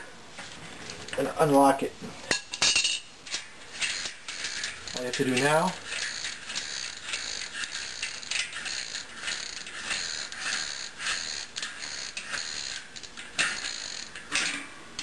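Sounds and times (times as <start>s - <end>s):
freewheel ratchet clicking: 3.3s - 14.4s.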